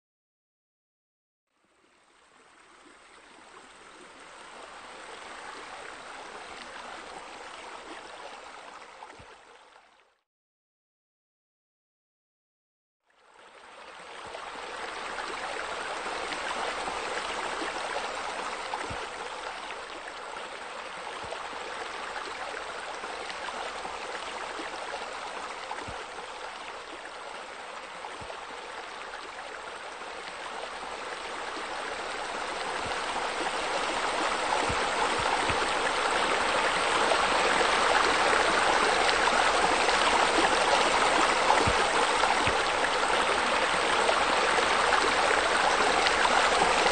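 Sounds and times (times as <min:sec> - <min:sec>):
running splashing water: 0:30.0 - 0:46.9.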